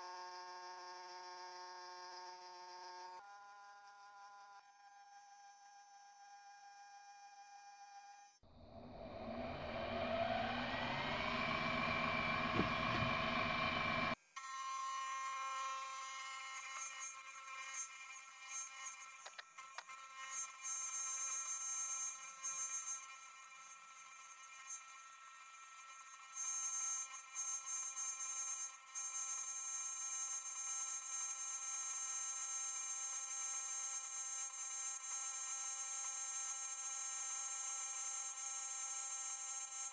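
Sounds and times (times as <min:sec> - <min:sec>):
mill motor whining: 0:08.5 - 0:14.2.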